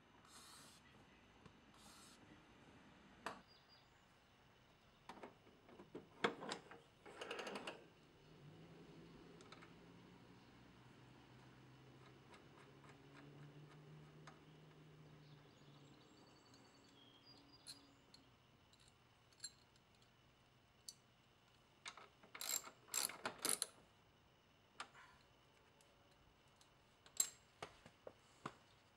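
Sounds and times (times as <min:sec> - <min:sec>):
ratchet wrench clicking: 0:22.4 - 0:23.7.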